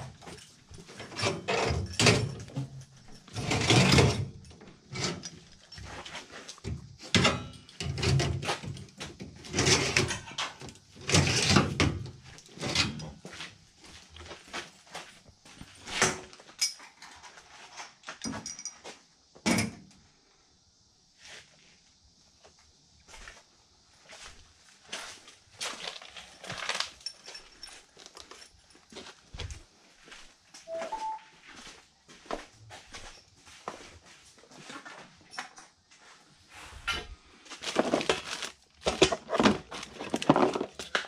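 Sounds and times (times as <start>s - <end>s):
metal knocks rattles and scrapes: 0.0s - 13.3s, 37.7s - 41.0s.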